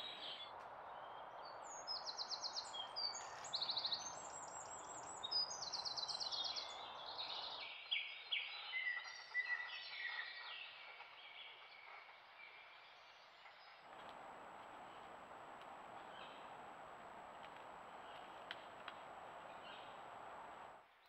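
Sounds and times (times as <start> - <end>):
steady hiss: 13.9 - 20.9.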